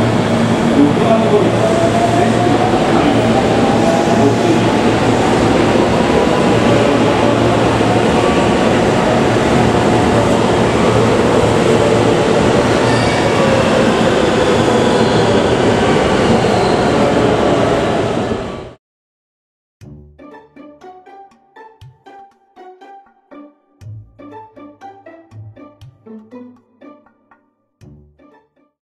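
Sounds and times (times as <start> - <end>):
train wheels rumbling on rails: 0.0 - 18.8.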